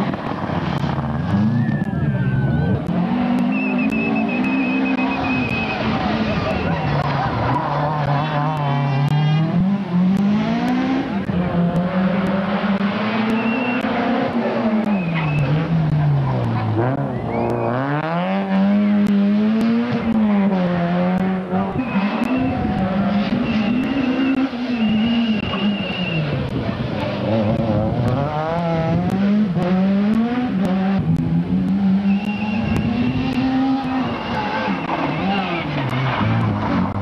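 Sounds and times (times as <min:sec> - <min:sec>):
rally car engines revving: 0:00.0 - 0:37.0.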